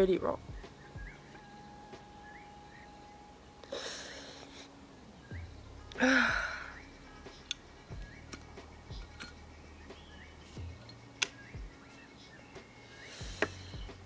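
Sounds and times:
woman sighing heavily: 5.9s - 6.8s.

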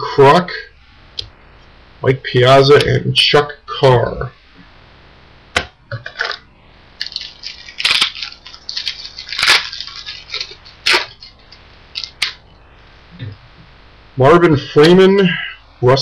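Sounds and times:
wrapper crinkling and tearing: 7.0s - 12.4s.

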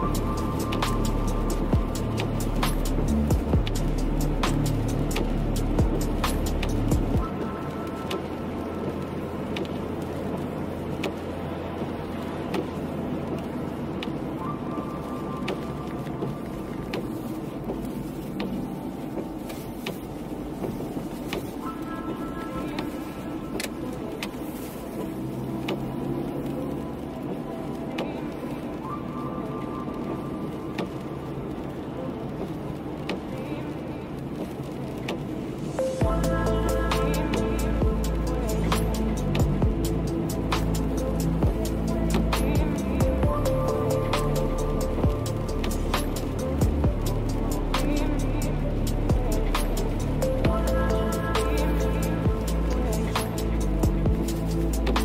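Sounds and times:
music: 0.0s - 55.0s
tyre noise on wet road: 0.0s - 55.0s.

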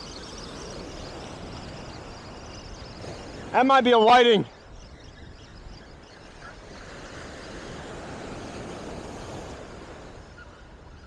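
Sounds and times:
surf washing up beach: 0.0s - 4.7s, 6.6s - 11.0s
wind on microphone: 4.5s - 11.0s.

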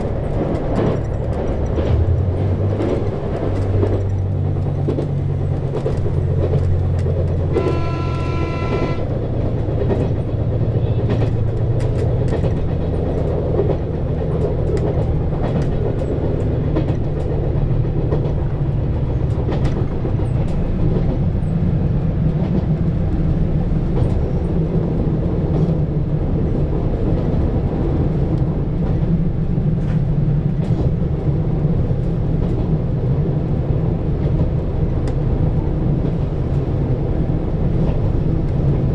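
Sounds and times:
clicks from the rails: 0.0s - 9.0s, 11.0s - 18.4s
train horn blast: 7.4s - 9.2s.

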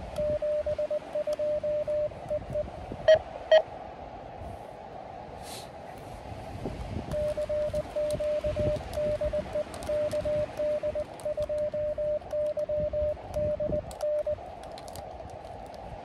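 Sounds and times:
wind rumble on microphone: 0.0s - 16.0s
morse code tone: 0.2s - 3.6s, 7.1s - 14.4s.

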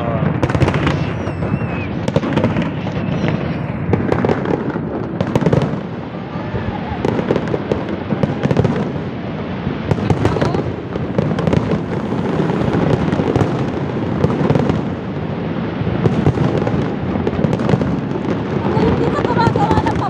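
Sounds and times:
dense fireworks crackling: 0.0s - 20.0s
fireworks shells bursting: 0.2s - 5.8s.

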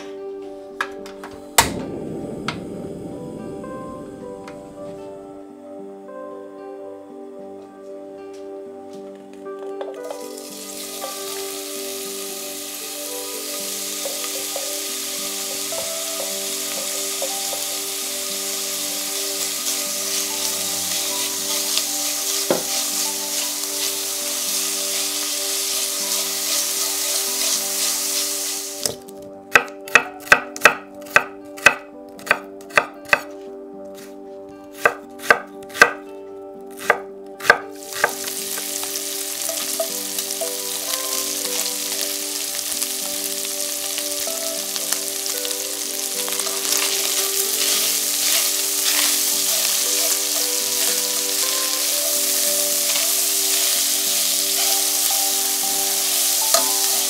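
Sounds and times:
bacon sizzling in a frying pan: 10.2s - 29.1s, 37.4s - 57.0s
knife chopping on a board: 29.6s - 33.3s, 34.8s - 36.0s, 36.8s - 38.2s.

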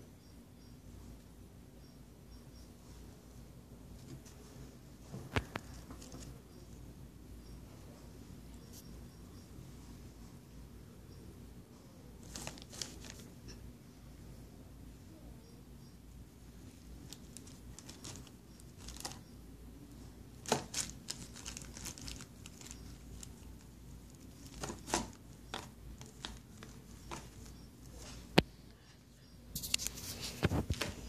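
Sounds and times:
plastic bags crinkling: 12.2s - 13.3s, 17.0s - 19.2s, 20.4s - 27.5s.

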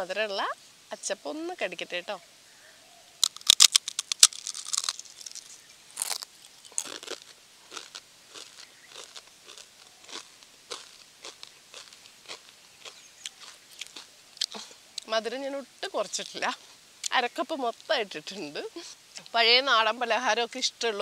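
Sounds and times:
loud sharp crunches of biting: 3.2s - 15.1s
softer chewing crunches: 3.2s - 15.1s.

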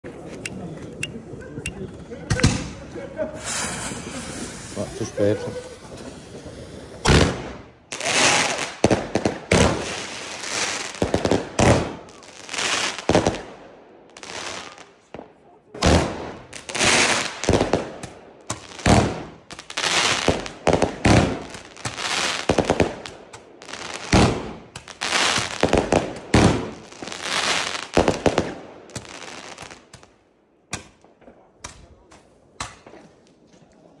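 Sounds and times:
fireworks bursting with loud bangs: 1.7s - 33.2s
scattered firework cracks: 5.6s - 33.0s.

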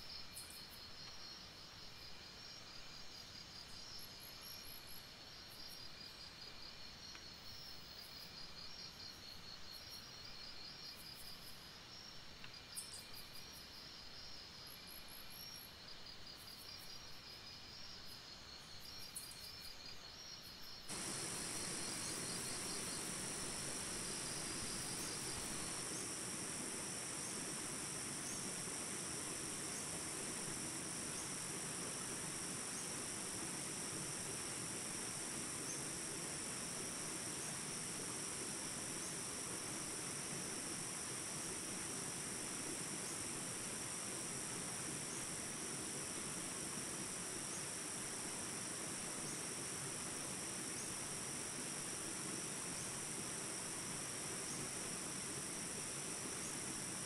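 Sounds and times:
insects chirping: 0.0s - 57.0s
soft steady hiss: 0.0s - 57.0s
rain rushing: 20.9s - 37.0s.

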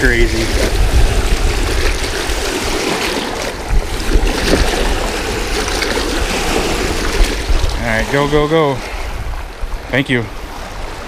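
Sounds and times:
lake waves splashing on rocks: 0.0s - 11.0s
wind rumble on microphone: 0.0s - 11.0s.

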